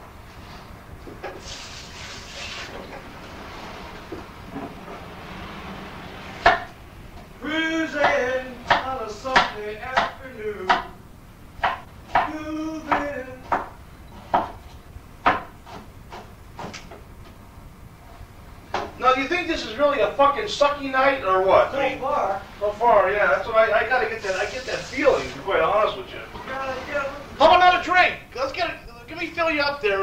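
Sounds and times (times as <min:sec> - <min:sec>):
indistinct voices: 0:01.4 - 0:11.0, 0:12.1 - 0:13.7, 0:19.0 - 0:30.0
sharp knocks and clacks: 0:06.4 - 0:06.8, 0:11.6 - 0:17.1.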